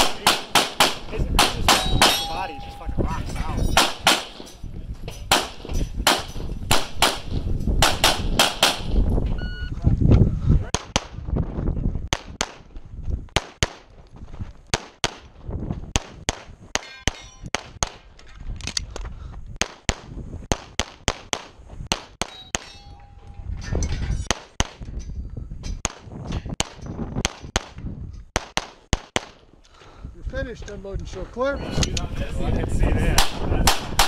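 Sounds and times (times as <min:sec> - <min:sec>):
pistol gunshots: 0:00.0 - 0:02.3, 0:03.8 - 0:04.5, 0:05.3 - 0:09.0, 0:14.7 - 0:15.3, 0:15.9 - 0:18.0, 0:19.6 - 0:22.7, 0:28.4 - 0:29.4, 0:33.2 - 0:34.0
steel targets ringing: 0:00.2 - 0:04.6, 0:22.2 - 0:23.3.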